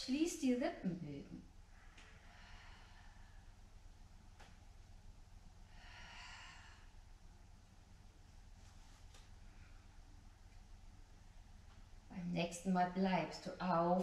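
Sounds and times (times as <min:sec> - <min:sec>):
person breathing: 0:01.8 - 0:03.6, 0:05.6 - 0:07.1.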